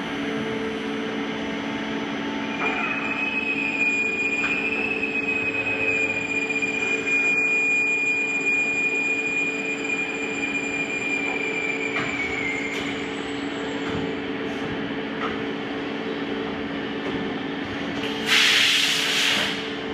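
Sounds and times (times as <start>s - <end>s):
milling machine whining: 0.0s - 15.1s.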